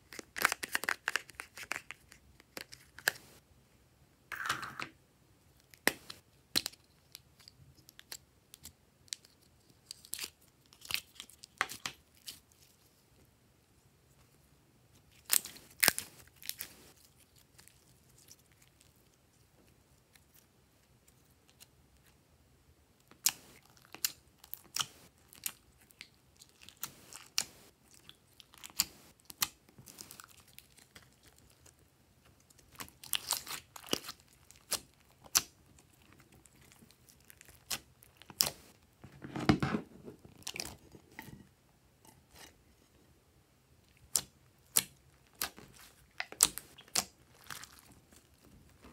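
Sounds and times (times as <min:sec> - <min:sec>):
wet slime squelching: 0:43.9 - 0:48.9.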